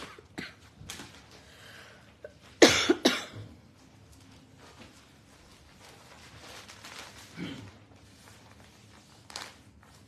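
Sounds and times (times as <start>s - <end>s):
woman coughing: 2.6s - 3.5s.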